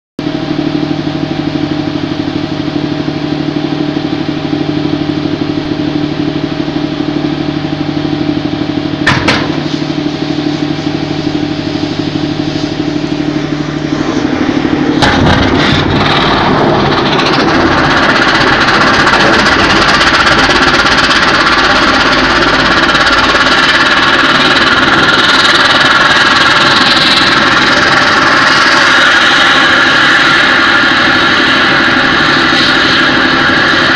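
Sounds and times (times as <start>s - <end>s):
engine humming: 0.7s - 32.3s
short knock: 9.0s - 9.6s
rocket motor blast and burning: 9.0s - 33.9s.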